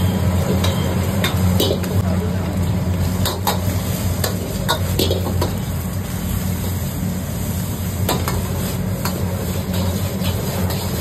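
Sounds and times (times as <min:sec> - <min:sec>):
food sizzling: 0:00.0 - 0:11.0
metal ladle scraping wok: 0:08.1 - 0:11.0.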